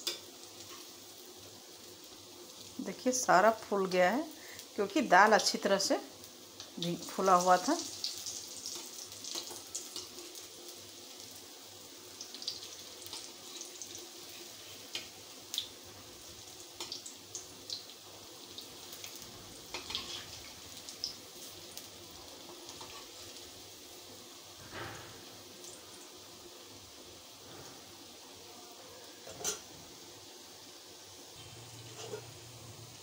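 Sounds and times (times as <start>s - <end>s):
fritters sizzling in hot oil: 0.0s - 33.0s
oil crackling and popping: 6.6s - 10.5s, 16.6s - 23.5s.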